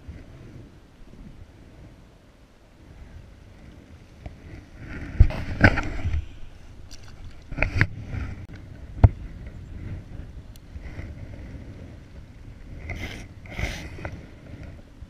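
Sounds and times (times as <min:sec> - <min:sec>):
wind rumble on microphone: 0:00.0 - 0:15.0
rustling of fishing gear: 0:03.4 - 0:15.0.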